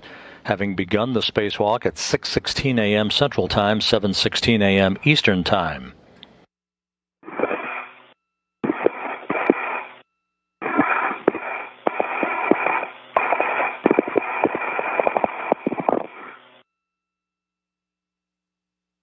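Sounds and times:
radio static hiss: 0:07.2 - 0:10.0, 0:10.6 - 0:16.6
radio clicks and crackles: 0:07.3 - 0:07.9, 0:08.6 - 0:10.0, 0:10.6 - 0:16.5.

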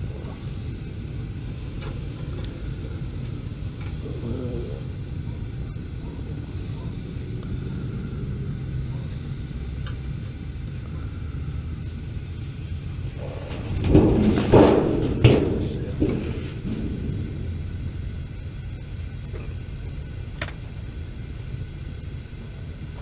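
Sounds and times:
steady low rumble: 0:00.0 - 0:23.0.

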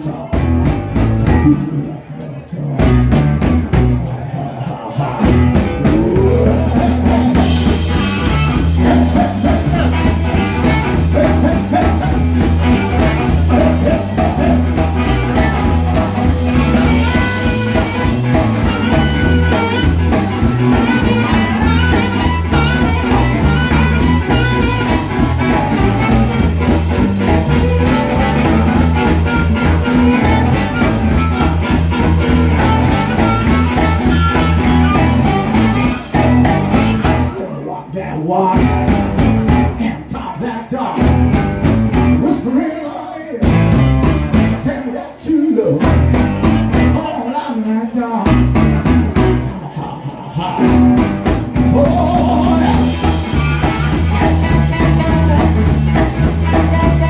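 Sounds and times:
bass guitar: 0:00.0 - 0:57.0
electric guitar: 0:00.0 - 0:57.0
drum groove: 0:00.2 - 0:01.9, 0:02.8 - 0:37.6, 0:38.5 - 0:40.0, 0:40.9 - 0:44.9, 0:45.8 - 0:47.3, 0:48.2 - 0:49.6, 0:50.5 - 0:57.0
blues harmonica: 0:05.3 - 0:37.4, 0:45.9 - 0:47.2, 0:50.6 - 0:57.0.

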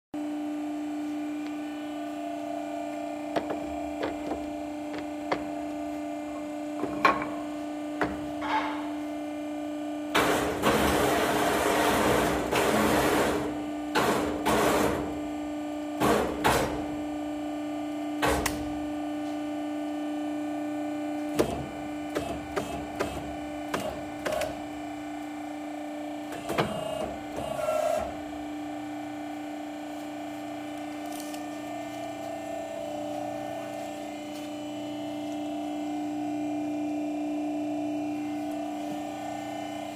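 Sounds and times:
door assembly machine humming: 0:01.0 - 0:17.2, 0:18.0 - 0:39.9
knocks and clicks on wooden frame: 0:03.3 - 0:05.5.

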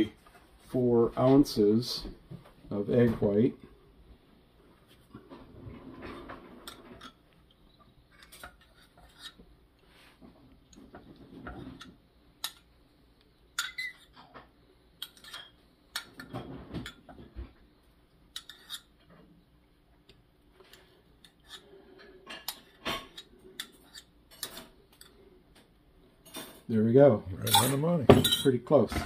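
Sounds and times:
metal spoon clinking on glass: 0:13.6 - 0:14.1.

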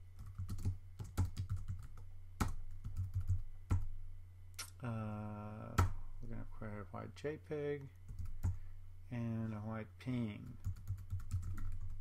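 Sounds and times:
steady pitched hum: 0:00.0 - 0:12.0
typing on computer keyboard: 0:00.2 - 0:03.9, 0:08.1 - 0:08.6, 0:10.5 - 0:12.0.

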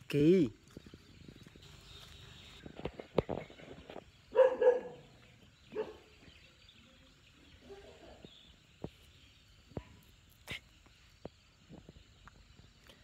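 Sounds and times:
dog barking: 0:04.3 - 0:05.0, 0:05.7 - 0:06.1, 0:07.6 - 0:08.2.

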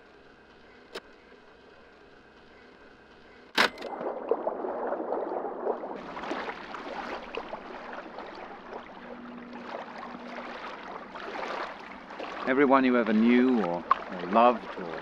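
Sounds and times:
crackling moving water: 0:00.0 - 0:15.0
sharp click: 0:03.6 - 0:03.9.

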